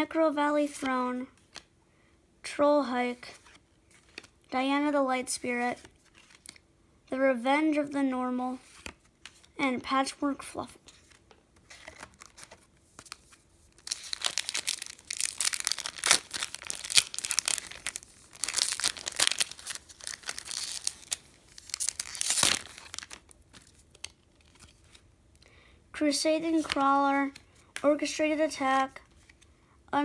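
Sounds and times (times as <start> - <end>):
foil wrapper crinkling: 11.8 - 25.0
foil pack ripping open: 13.8 - 23.4.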